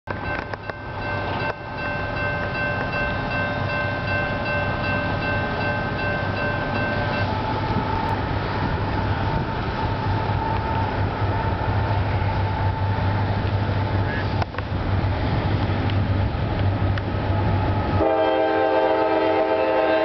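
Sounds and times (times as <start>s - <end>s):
crossing bell ringing: 0.1s - 8.1s
freight train rumble: 0.1s - 20.0s.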